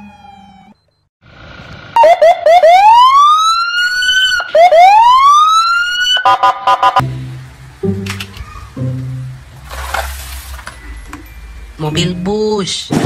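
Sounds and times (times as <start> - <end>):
police siren yelping and wailing: 2.0 - 7.0.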